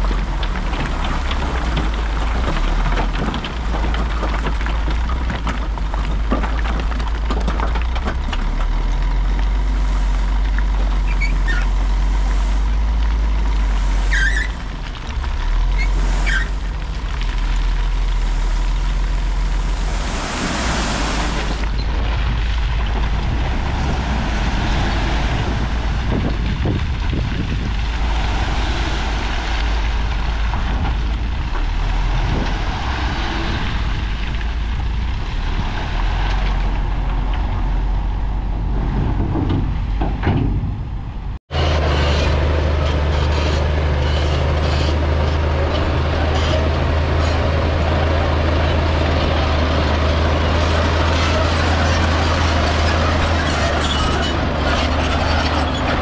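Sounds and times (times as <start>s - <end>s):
heavy diesel engines: 0.0s - 56.0s.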